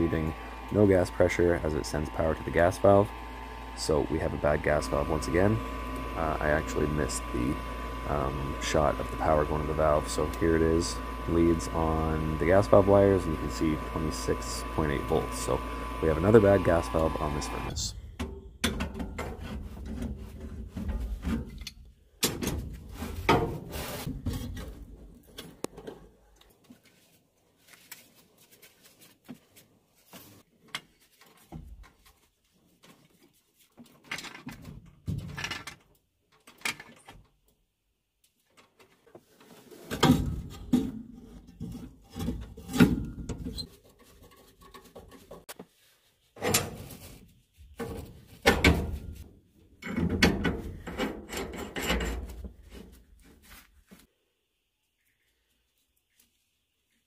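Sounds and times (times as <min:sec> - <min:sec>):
metal tools scraping and clanking: 0:50.7 - 0:52.4.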